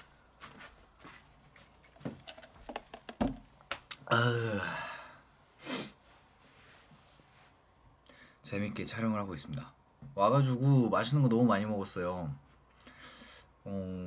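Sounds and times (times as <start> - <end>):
plastic cup clicks and knocks: 2.2 - 3.9
man sighing: 4.0 - 5.2
short breath: 12.8 - 13.5.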